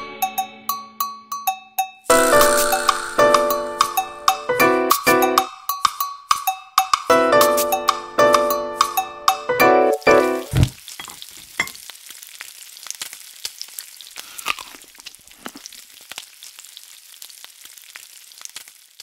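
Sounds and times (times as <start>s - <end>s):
music hit: 2.1s - 4.6s
food sizzling in a frying pan: 10.0s - 19.0s.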